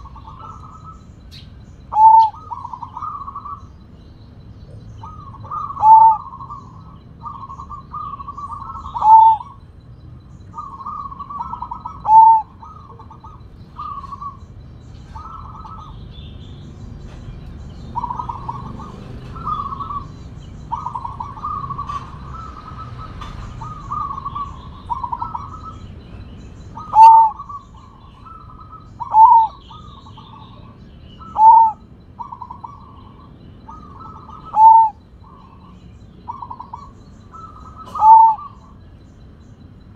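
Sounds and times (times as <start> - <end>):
dove rolling coos: 0.0 - 3.8, 4.7 - 9.7, 10.5 - 16.0, 17.9 - 25.9, 26.7 - 38.8
loud drawn-out dove coo: 1.9 - 3.6, 4.7 - 9.6, 10.5 - 14.4, 18.0 - 25.8, 26.8 - 35.7, 36.3 - 38.7.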